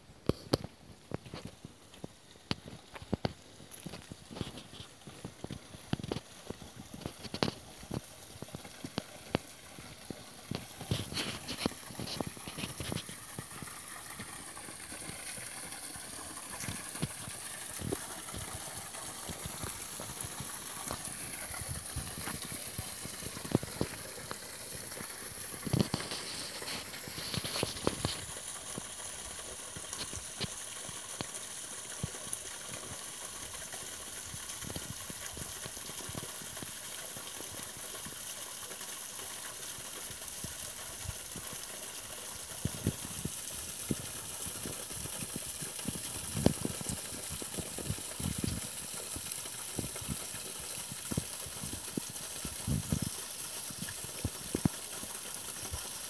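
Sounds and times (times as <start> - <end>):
waterfall splashing into pool: 2.5 - 56.0.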